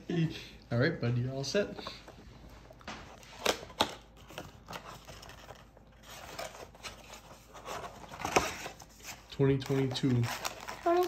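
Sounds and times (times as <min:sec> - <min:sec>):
cardboard box rustling: 0:04.2 - 0:11.0.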